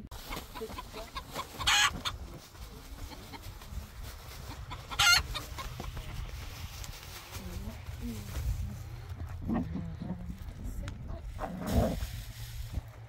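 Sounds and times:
low steady rumble: 5.8 - 13.0.

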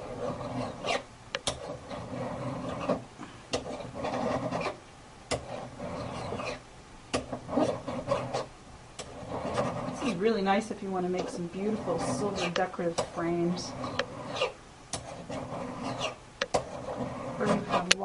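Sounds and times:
hand file filing metal: 0.0 - 6.6, 7.2 - 10.4, 11.0 - 18.0
file ticking against metal: 0.5 - 10.2, 13.8 - 18.0.

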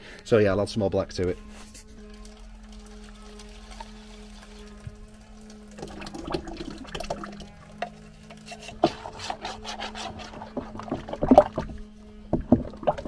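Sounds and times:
wooden stick scraping plastic tub: 8.4 - 11.8.

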